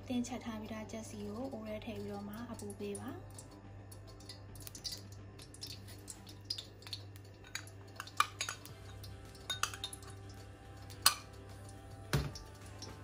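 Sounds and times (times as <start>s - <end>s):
dishes and utensils clinking: 3.3s - 13.0s.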